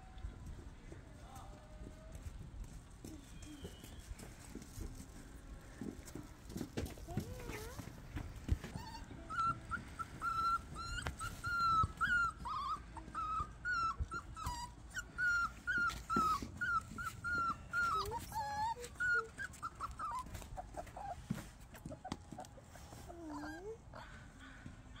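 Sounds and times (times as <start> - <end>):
puppies whimpering: 7.1 - 25.0.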